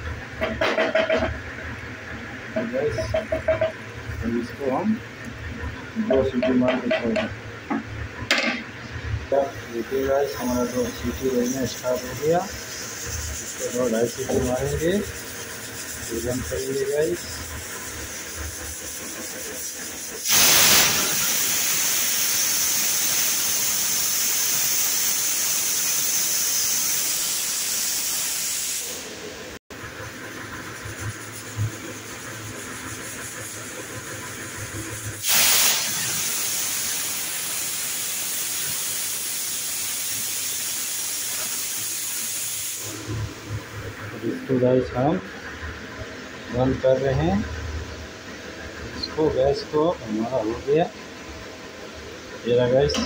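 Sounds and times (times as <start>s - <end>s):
pressure cooker whistling: 9.3s - 28.9s.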